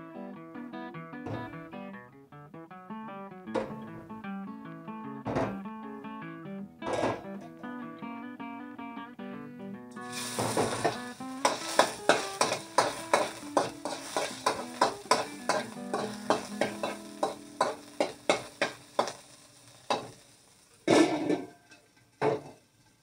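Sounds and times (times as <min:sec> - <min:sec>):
food sizzling in a pan: 0:10.0 - 0:23.0
spatula scraping a pan: 0:10.1 - 0:20.1, 0:20.9 - 0:23.0.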